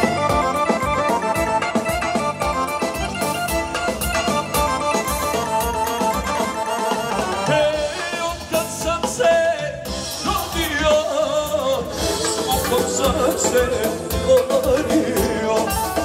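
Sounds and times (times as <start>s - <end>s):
live folk band music: 0.0s - 16.0s
man singing into microphone: 6.9s - 16.0s.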